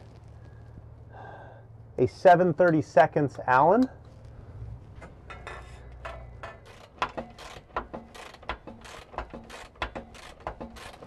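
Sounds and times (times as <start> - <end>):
ratchet wrench clicking: 5.4 - 11.0.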